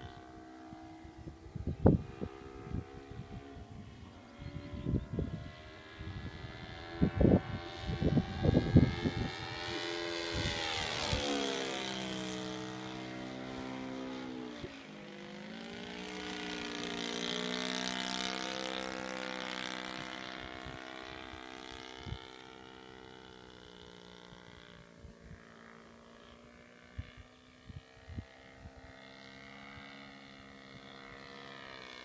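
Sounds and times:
model plane engine flying overhead: 0:00.0 - 0:32.0
wind buffeting microphone: 0:01.0 - 0:13.0.

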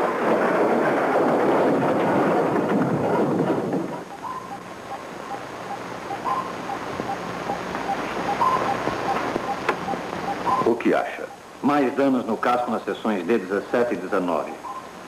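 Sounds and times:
higher electronic tone: 0:04.0 - 0:11.4
short electronic beeps: 0:04.1 - 0:11.5, 0:14.6 - 0:14.9.

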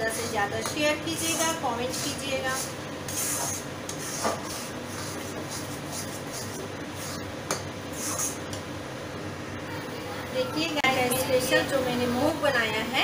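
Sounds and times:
spatula scraping a steel pan: 0:01.2 - 0:07.2.

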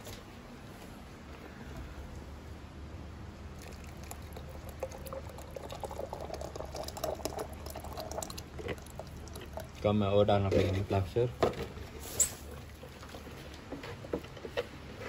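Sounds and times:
wet plaster pouring and plopping: 0:03.6 - 0:09.9.

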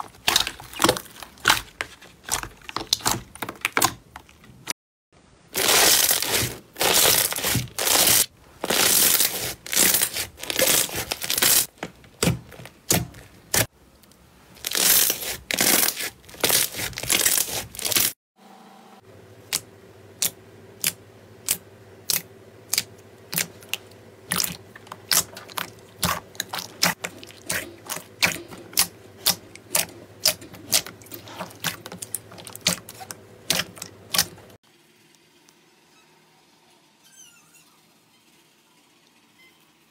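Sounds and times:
slime crackling and squelching: 0:00.0 - 0:04.7, 0:05.5 - 0:13.7, 0:14.5 - 0:18.2, 0:20.8 - 0:34.6.

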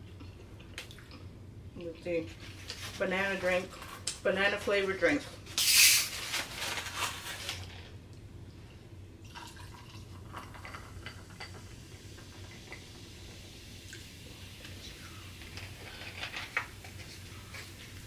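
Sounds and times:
drink pouring hiss: 0:05.6 - 0:06.1, 0:09.2 - 0:18.0
liquid trickling: 0:09.2 - 0:15.9.

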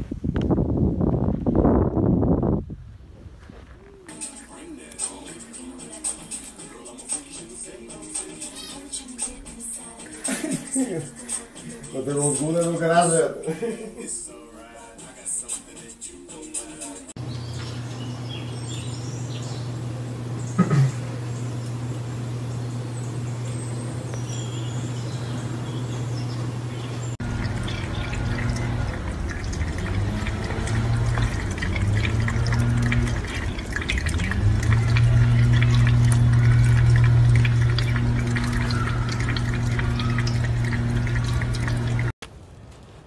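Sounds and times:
steady low hum: 0:17.2 - 0:42.1
water splashing and dripping in sink: 0:27.1 - 0:42.1
cat lapping water: 0:27.2 - 0:42.1.

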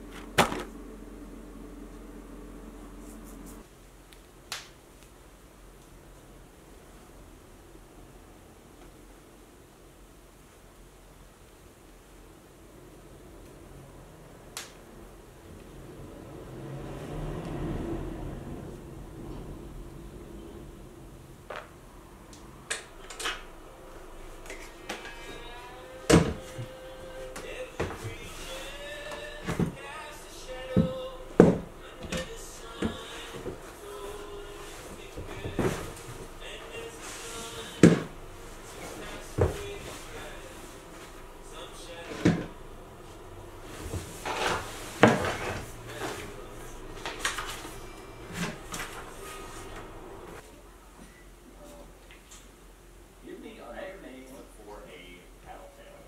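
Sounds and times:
chair parts knocking and clattering: 0:00.1 - 0:00.7.

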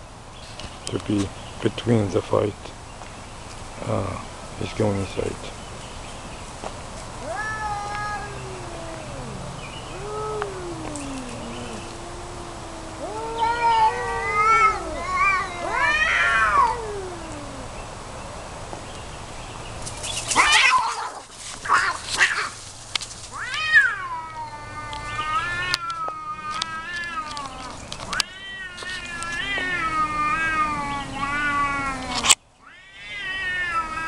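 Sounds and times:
cat harsh rasping bursts: 0:07.1 - 0:16.8, 0:20.1 - 0:24.0
cats yowling in a fight: 0:07.2 - 0:17.8, 0:20.2 - 0:34.0.

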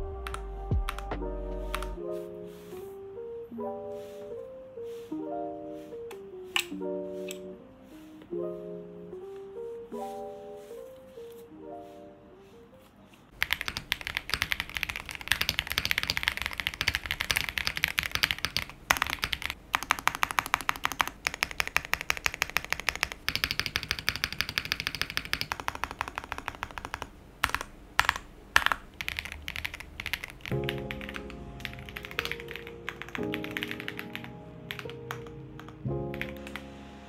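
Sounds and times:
fast typing on mechanical keyboard: 0:13.3 - 0:36.6.

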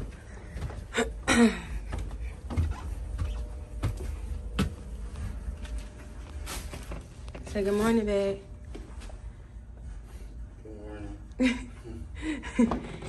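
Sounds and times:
footsteps on carpeted stairs: 0:00.0 - 0:10.2
steady low hum: 0:00.0 - 0:13.0.

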